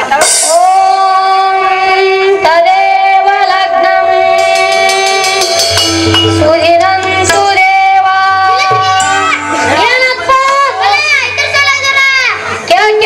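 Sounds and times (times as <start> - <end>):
instrumental accompaniment: 0.0 - 12.7
person singing long notes: 0.2 - 11.0.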